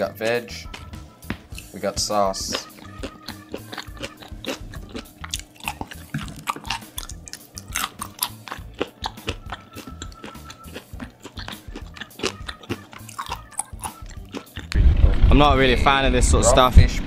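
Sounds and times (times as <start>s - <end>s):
person chewing raw fish: 0.6s - 14.7s
wet mouth clicks and crunches: 1.5s - 1.7s, 2.5s - 14.8s.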